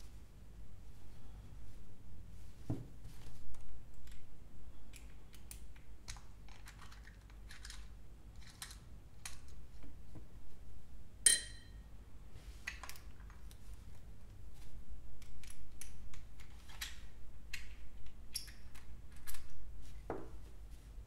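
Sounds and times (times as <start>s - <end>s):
sharp ringing metallic clink: 11.2s - 11.8s.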